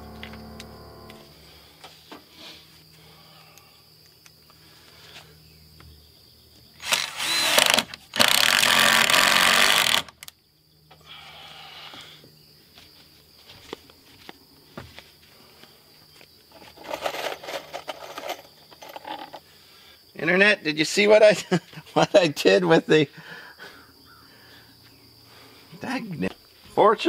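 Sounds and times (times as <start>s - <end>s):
cordless drill driving a screw: 6.8s - 10.3s.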